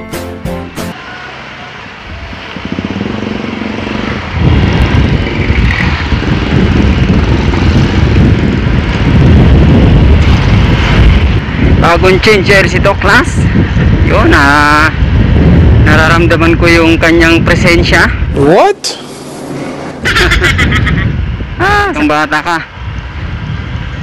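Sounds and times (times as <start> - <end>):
music jingle: 0.0 - 1.0
scooter engine humming: 0.8 - 10.2
wind rush on microphone: 2.0 - 24.0.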